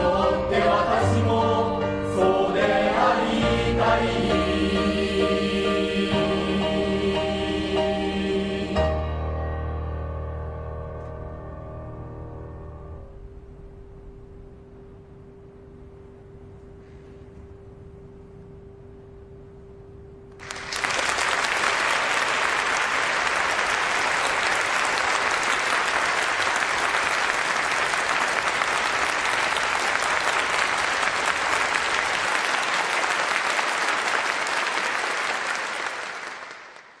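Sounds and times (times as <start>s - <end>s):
audience applauding: 20.4s - 37.0s.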